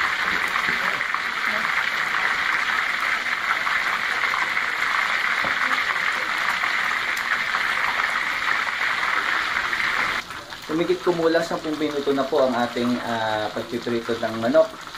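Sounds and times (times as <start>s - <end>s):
hot oil sizzling and bubbling: 0.0s - 14.9s.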